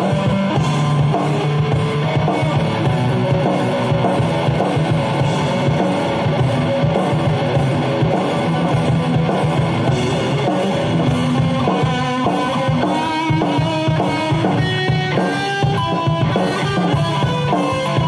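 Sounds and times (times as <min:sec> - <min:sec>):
backing drums: 0:00.0 - 0:18.0
electric guitar playing rock: 0:00.0 - 0:18.0.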